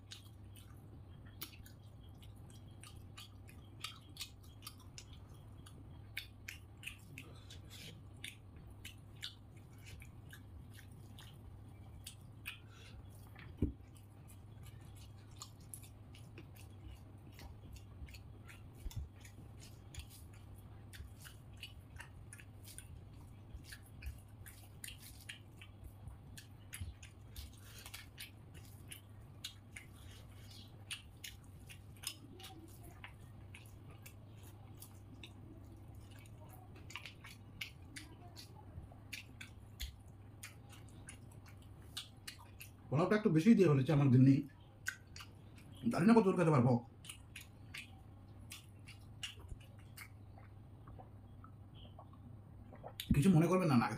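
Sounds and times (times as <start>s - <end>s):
chewing: 0.0s - 42.9s, 44.5s - 53.2s
steady low hum: 0.0s - 53.9s.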